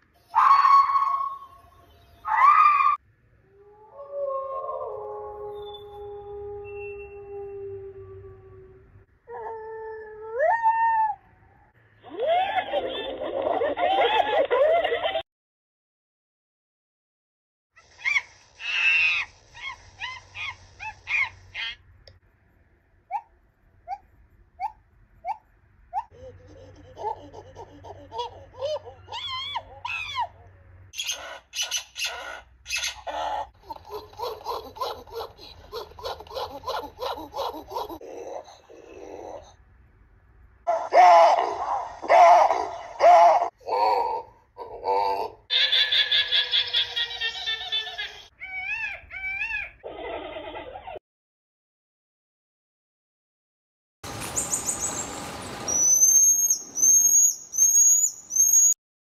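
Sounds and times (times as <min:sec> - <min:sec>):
marmoset chirps: 0:55.7 - 0:58.8
marmoset high whistles: 0:55.7 - 0:58.8.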